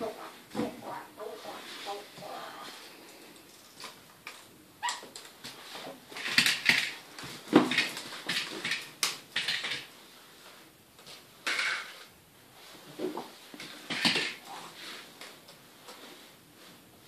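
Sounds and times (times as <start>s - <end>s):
plastic toy cars clattering: 6.1s - 9.9s, 11.4s - 12.1s, 13.6s - 14.5s.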